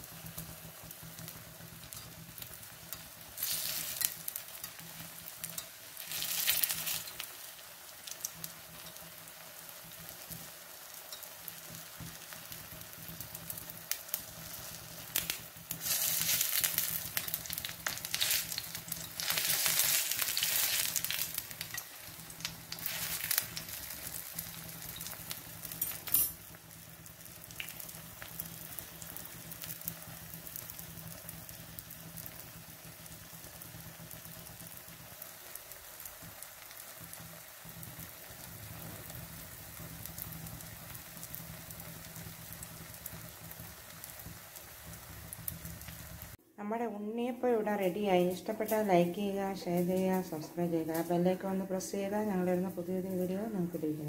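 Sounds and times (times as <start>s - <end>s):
oil sizzling in a pan: 0.0s - 46.4s
metal skewer turning food: 1.9s - 7.3s, 14.6s - 26.5s.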